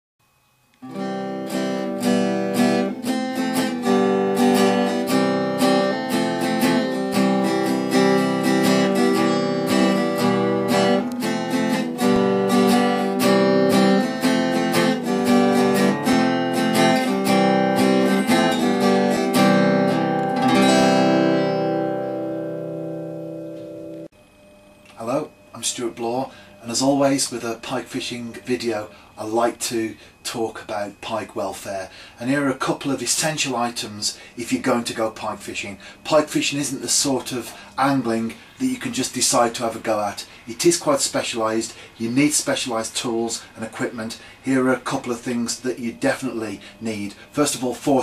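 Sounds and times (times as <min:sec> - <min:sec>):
acoustic guitar music: 0:00.8 - 0:24.1.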